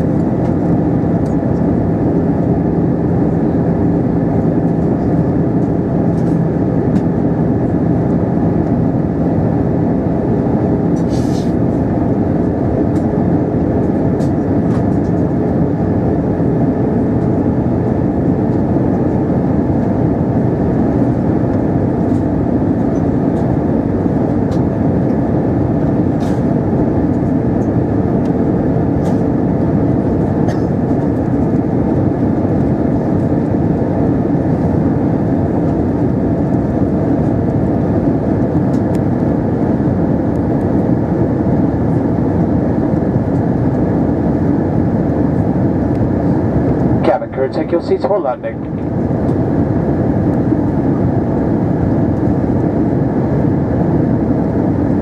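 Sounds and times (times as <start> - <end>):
aircraft cabin engine drone: 0.0 - 55.0.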